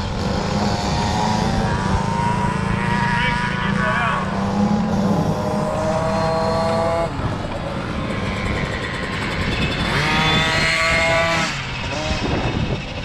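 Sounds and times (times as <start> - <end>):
dirt bike engine revving: 0.0 - 13.0
wind on microphone: 4.9 - 13.0.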